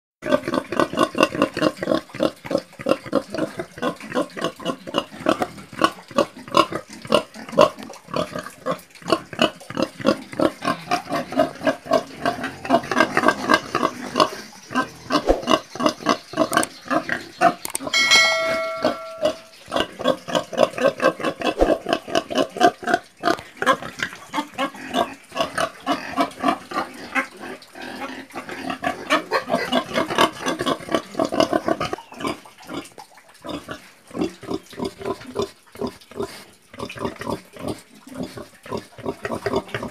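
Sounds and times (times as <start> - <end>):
pigs grunting: 0.2 - 17.6, 18.3 - 39.9
bell-like chime: 17.9 - 19.6.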